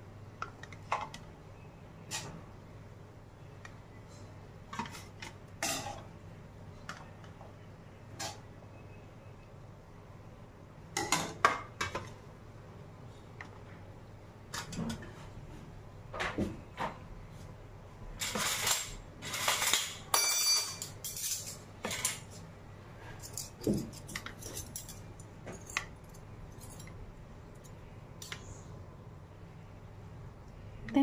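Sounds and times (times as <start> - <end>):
spoons clinking on steel plate: 18.6 - 22.3.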